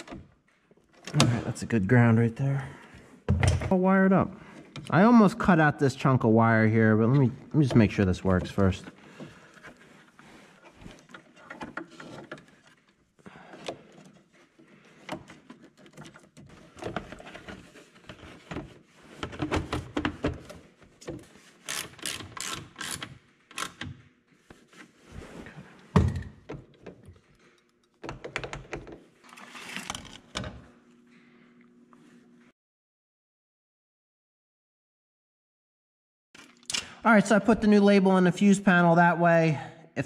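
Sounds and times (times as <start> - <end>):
hands handling wiring and plastic: 7.1 - 25.0.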